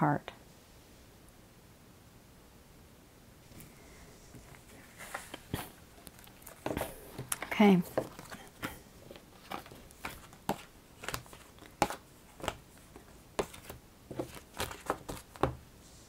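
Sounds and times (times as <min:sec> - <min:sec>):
cards tapping and flicking: 0:06.6 - 0:15.6.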